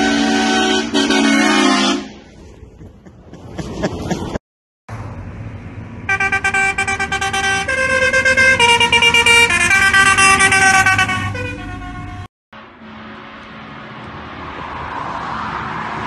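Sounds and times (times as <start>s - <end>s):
musical air horn playing a tune: 0.0s - 2.2s, 6.1s - 12.3s.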